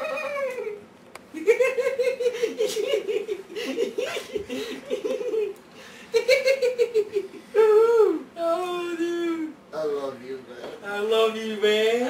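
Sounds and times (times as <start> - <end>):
young men laughing: 0.0 - 8.2.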